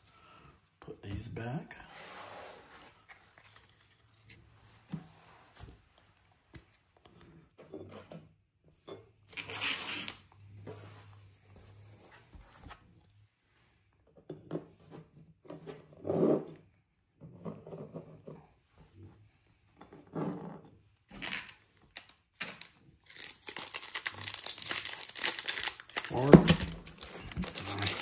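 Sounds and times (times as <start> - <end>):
cards and wrappers rustling: 2.8 - 4.5, 21.1 - 28.0
foil wrapper crackle: 21.2 - 28.0.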